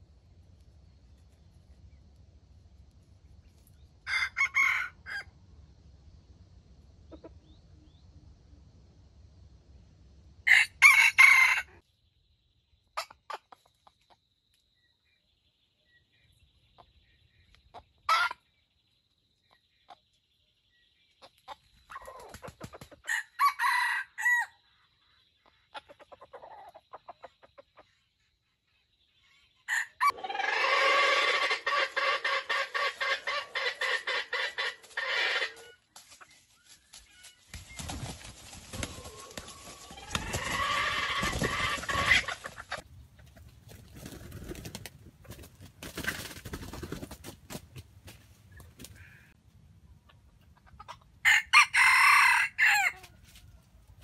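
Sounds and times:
rooster crowing: 0:04.0 - 0:05.3, 0:10.4 - 0:11.8, 0:23.1 - 0:24.6, 0:29.7 - 0:35.7, 0:39.0 - 0:42.3, 0:51.2 - 0:53.4.

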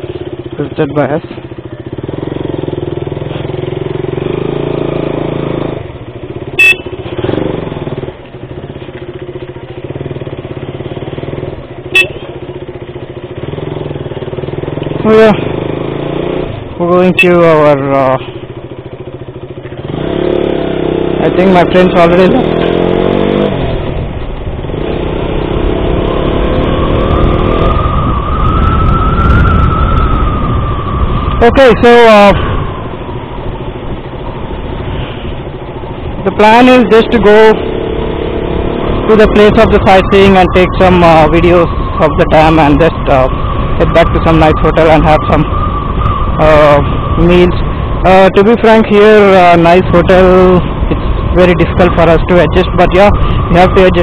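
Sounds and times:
motorcycle engine at low revs: 0:00.0 - 0:54.0
horn beeps: 0:06.5 - 0:07.2, 0:11.8 - 0:12.4
wind rush: 0:25.4 - 0:36.3, 0:49.2 - 0:54.0.

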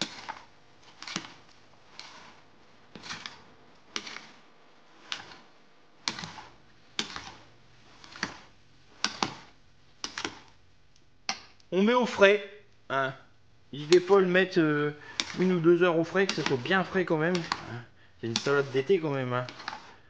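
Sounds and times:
metal spoon scraping glass bowl: 0:00.0 - 0:04.4, 0:05.0 - 0:10.5, 0:15.1 - 0:20.0.

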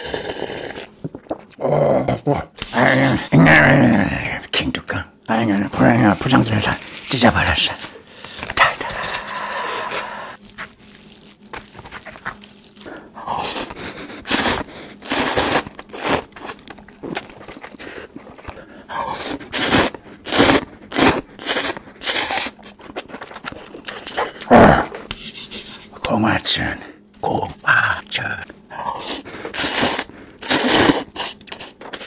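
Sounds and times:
sucking breaths: 0:08.0 - 0:10.4
noodle slurping: 0:11.9 - 0:24.5, 0:29.0 - 0:32.0.

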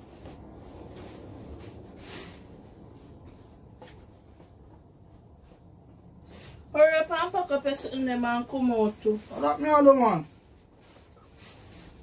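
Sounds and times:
cloth swishes: 0:00.0 - 0:04.0, 0:08.6 - 0:12.0
cloth rustling: 0:00.0 - 0:12.0.

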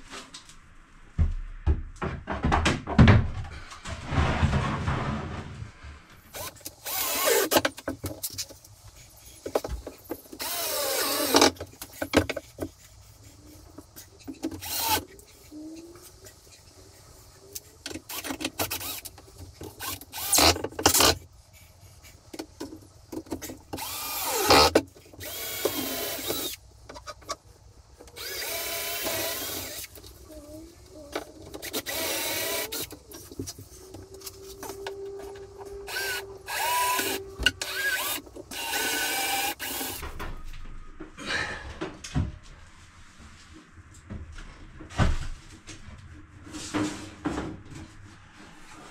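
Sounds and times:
boards knocking and clattering: 0:01.2 - 0:05.6
cordless drill driving screws: 0:06.3 - 0:07.7, 0:10.4 - 0:11.6, 0:14.6 - 0:15.0, 0:18.1 - 0:19.1, 0:19.8 - 0:21.2, 0:23.8 - 0:26.6, 0:28.2 - 0:30.0, 0:31.6 - 0:33.0, 0:35.9 - 0:40.0.

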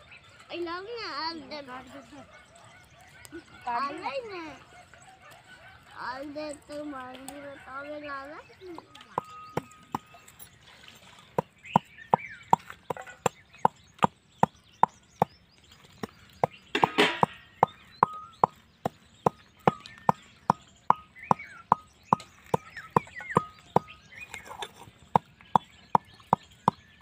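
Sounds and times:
pestle pounding in mortar: 0:11.4 - 0:27.0.

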